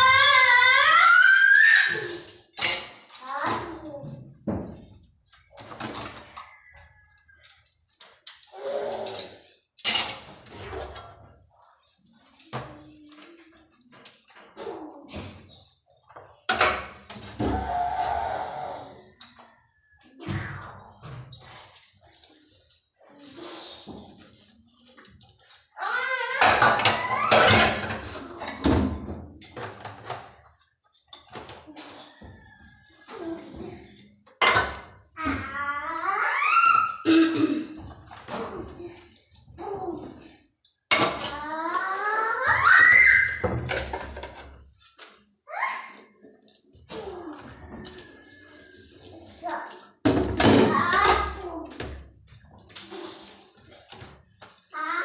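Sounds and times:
dishes clinking in a steel sink: 0:02.4 - 0:03.6, 0:09.0 - 0:11.0, 0:34.3 - 0:35.0.

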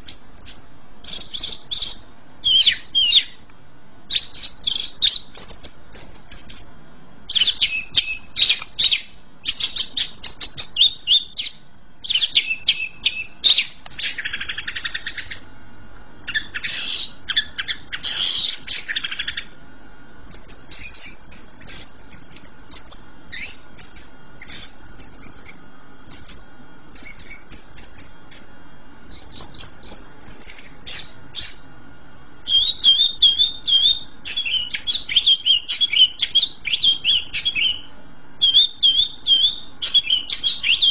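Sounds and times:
bird singing rapid high notes: 0:00.0 - 0:03.4, 0:04.1 - 0:15.4, 0:16.3 - 0:19.5, 0:20.3 - 0:31.7, 0:32.4 - 0:40.9
bird scratchy chatters: 0:04.2 - 0:15.4.

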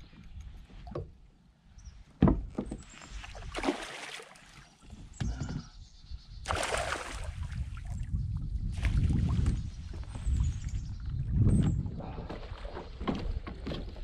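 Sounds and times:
fish splashing at the surface: 0:03.4 - 0:04.6, 0:06.5 - 0:07.7.

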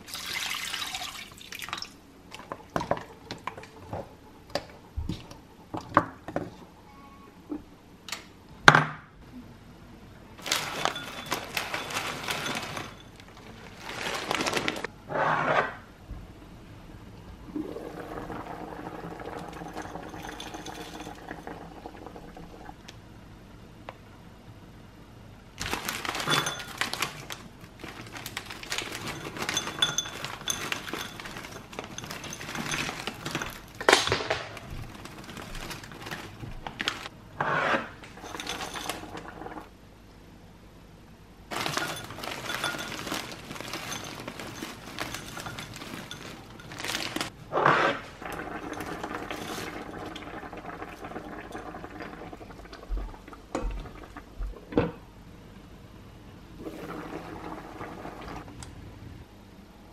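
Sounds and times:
frozen vegetables clattering into glass bowl: 0:10.4 - 0:14.9, 0:18.0 - 0:21.5, 0:25.6 - 0:37.1, 0:38.1 - 0:39.4, 0:41.5 - 0:47.4, 0:48.2 - 0:51.6
plastic bag crinkling: 0:10.4 - 0:14.9, 0:25.6 - 0:37.1, 0:41.5 - 0:47.4, 0:48.6 - 0:50.2.

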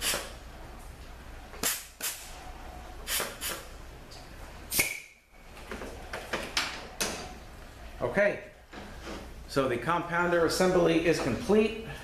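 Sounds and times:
compressed air blasts: 0:00.0 - 0:00.4, 0:01.6 - 0:02.4, 0:03.0 - 0:03.7, 0:04.7 - 0:05.2.

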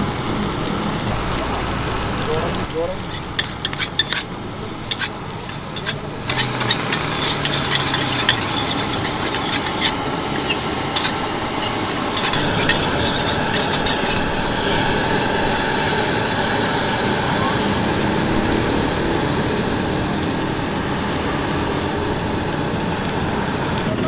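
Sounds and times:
food sizzling: 0:00.0 - 0:24.0
metal spatula scraping a wok: 0:02.9 - 0:16.2.

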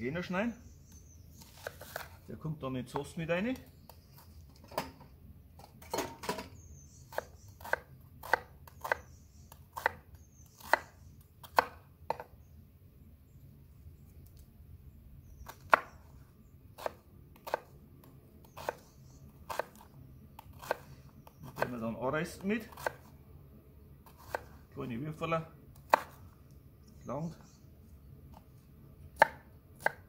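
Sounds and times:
knife chopping on wooden board: 0:07.1 - 0:09.0, 0:10.6 - 0:12.3, 0:16.8 - 0:17.7, 0:25.8 - 0:26.2, 0:29.2 - 0:30.0.

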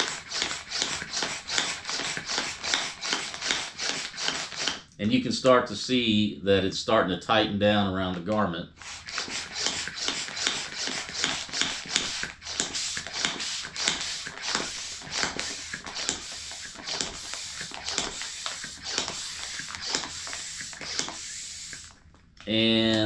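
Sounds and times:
hand pump hissing air: 0:00.0 - 0:04.9, 0:08.8 - 0:22.0.

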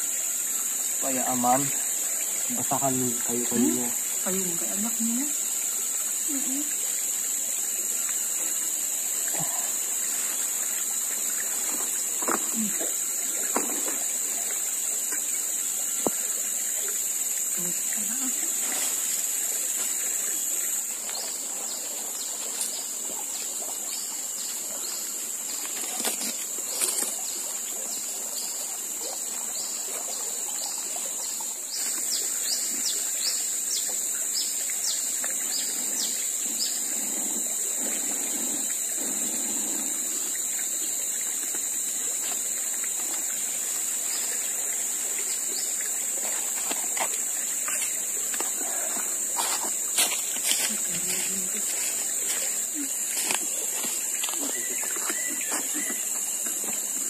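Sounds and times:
water flowing and trickling: 0:00.0 - 0:57.0
steady high-pitched buzz: 0:31.2 - 0:57.0.

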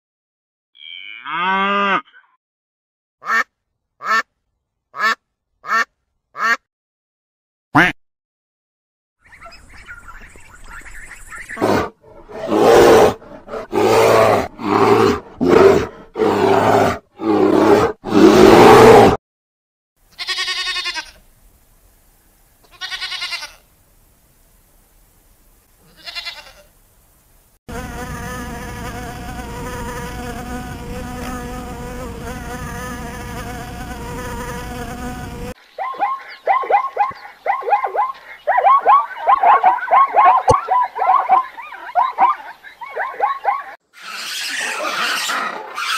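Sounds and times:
ducks quacking: 0:03.2 - 0:04.3, 0:05.0 - 0:06.6, 0:07.8 - 0:08.0
zebras barking: 0:11.5 - 0:19.2, 0:35.8 - 0:45.9
sheep bleating: 0:20.1 - 0:21.2, 0:22.6 - 0:23.6, 0:25.8 - 0:26.7
insect buzz: 0:25.8 - 0:35.6.

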